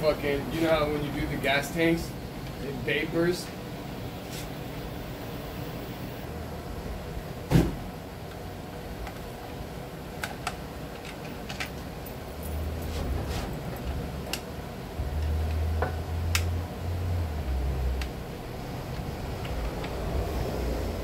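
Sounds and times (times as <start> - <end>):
low rumble: 14.9 - 21.0.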